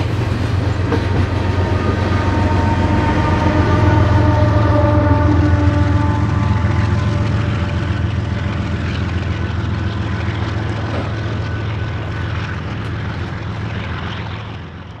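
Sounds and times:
diesel locomotives humming: 0.0s - 15.0s
train wagons rumbling on rails: 0.0s - 15.0s.

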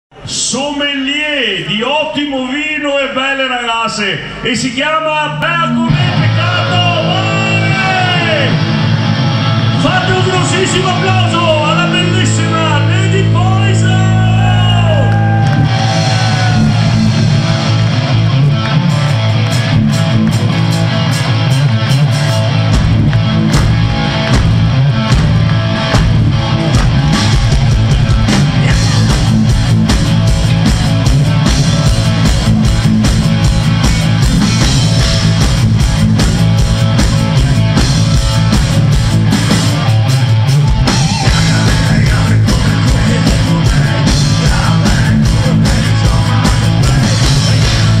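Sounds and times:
bass guitar: 5.4s - 48.0s
electric guitar: 5.9s - 48.0s
drum kit beat: 9.8s - 48.0s.

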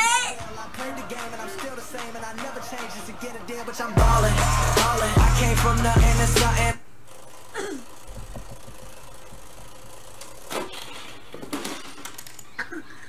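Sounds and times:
music: 0.0s - 6.8s
game pieces clattering: 11.4s - 12.6s.

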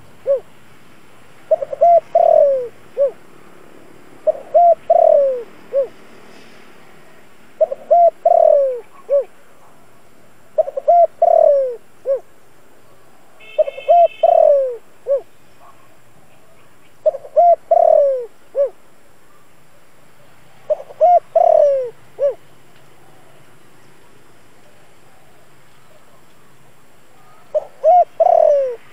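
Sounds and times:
dove cooing: 0.0s - 0.5s, 1.5s - 3.2s, 4.2s - 6.0s, 7.6s - 9.3s, 10.6s - 12.3s, 13.6s - 15.9s, 17.0s - 19.4s, 20.6s - 23.4s, 27.1s - 28.9s.

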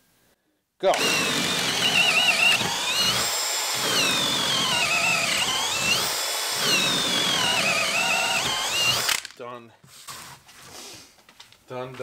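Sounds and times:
drill boring through wood: 0.9s - 9.3s.

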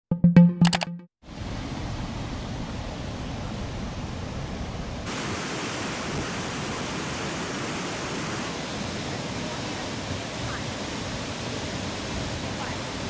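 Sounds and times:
waterfall and rapids rushing: 5.0s - 13.0s.

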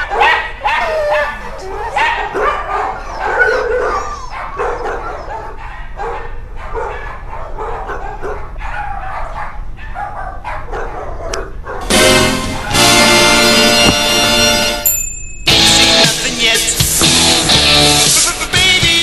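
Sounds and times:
dogs barking and yipping: 0.0s - 13.1s.

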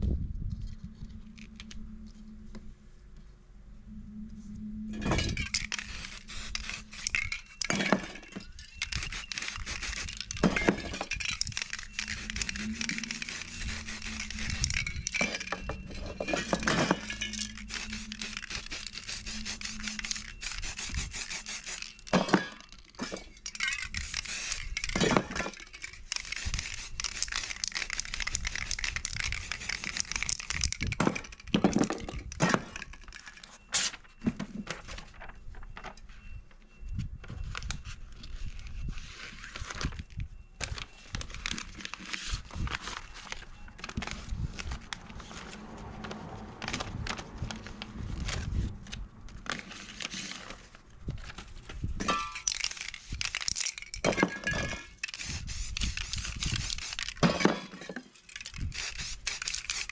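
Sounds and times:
aerosol spray can hissing: 5.8s - 7.1s, 9.0s - 10.2s, 12.1s - 14.8s, 17.7s - 21.9s, 55.2s - 57.0s.

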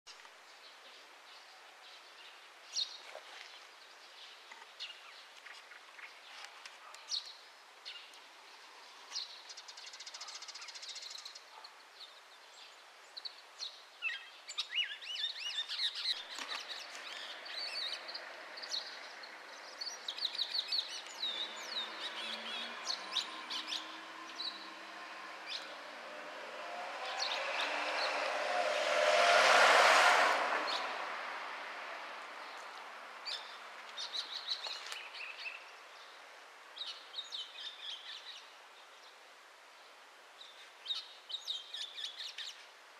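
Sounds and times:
passing vehicle: 15.7s - 34.6s.

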